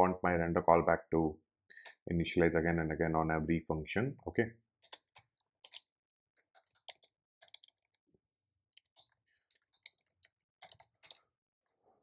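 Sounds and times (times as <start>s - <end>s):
keyboard typing: 4.8s - 8.0s, 8.7s - 11.2s.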